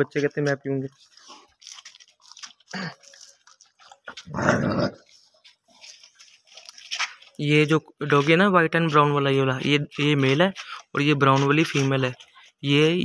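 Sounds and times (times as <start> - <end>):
dog growling: 4.2 - 5.1.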